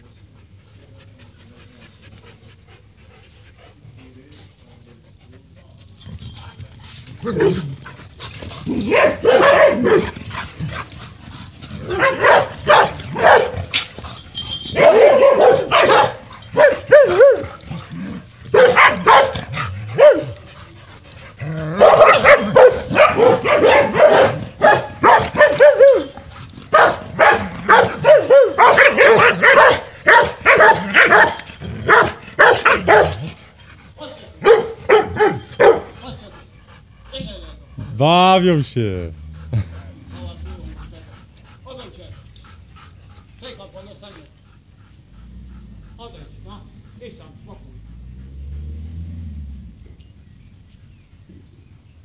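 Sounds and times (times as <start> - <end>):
dogs barking: 7.2 - 7.8, 8.6 - 11.0, 11.7 - 13.9, 14.6 - 20.6, 21.4 - 33.4, 34.4 - 36.3.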